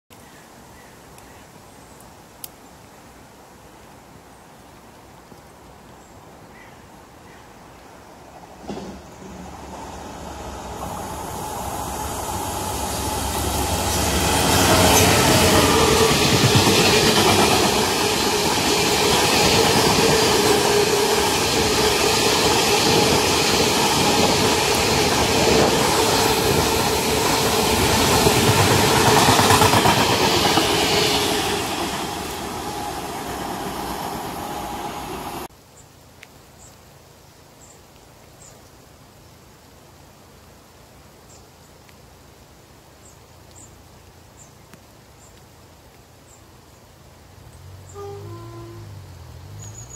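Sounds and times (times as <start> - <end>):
freight train rolling past: 8.3 - 35.5.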